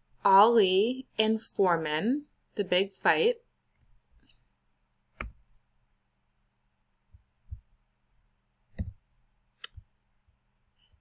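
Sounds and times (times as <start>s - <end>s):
computer mouse clicks: 5.1s - 5.4s, 8.7s - 9.0s.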